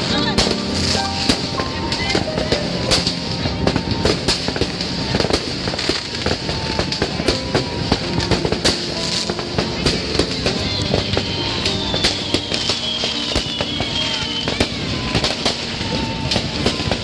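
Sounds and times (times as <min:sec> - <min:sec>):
fireworks and firecrackers banging: 0:00.0 - 0:17.0.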